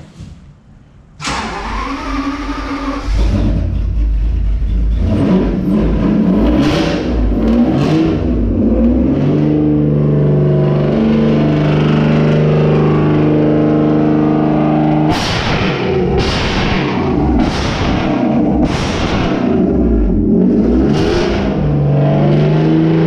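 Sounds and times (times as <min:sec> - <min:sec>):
car engine running loud: 0:02.9 - 0:23.0.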